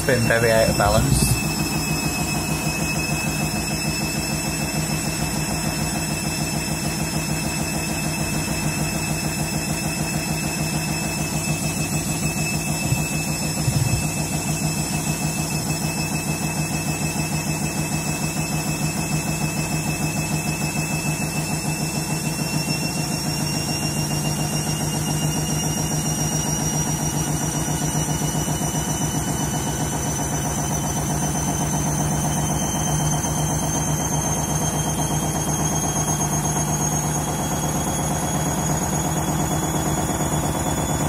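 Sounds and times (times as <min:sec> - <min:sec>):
washing machine spinning out of balance: 0:00.0 - 0:41.0
washing machine knock: 0:12.6 - 0:14.5.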